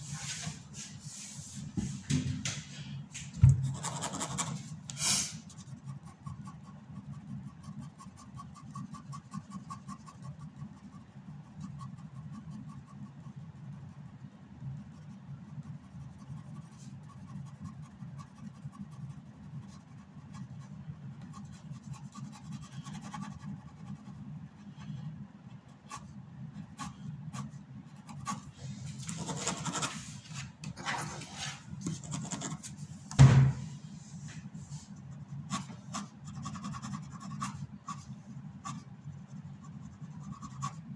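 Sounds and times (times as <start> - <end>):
pen scratching on paper: 3.6 - 4.6, 5.5 - 13.4, 29.0 - 30.1, 30.8 - 32.7, 35.5 - 40.8
loud thump: 33.1 - 33.7.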